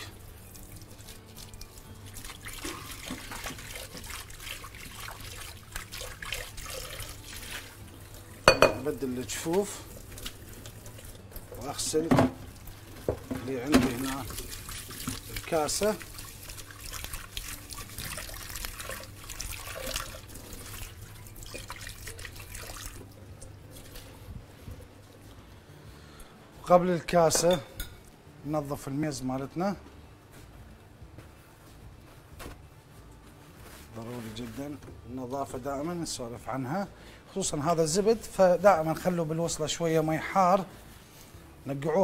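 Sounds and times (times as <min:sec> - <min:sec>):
bowl being washed by hand: 0:00.0 - 0:25.2, 0:37.5 - 0:40.7.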